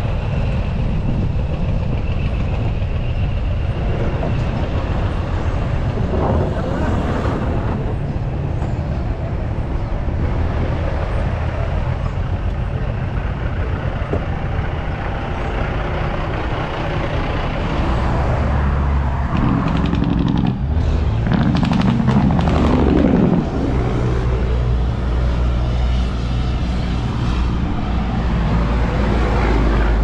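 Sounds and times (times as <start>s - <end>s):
road noise: 0.0s - 30.0s
truck engine running: 0.0s - 30.0s
engine rising in pitch: 14.5s - 25.8s.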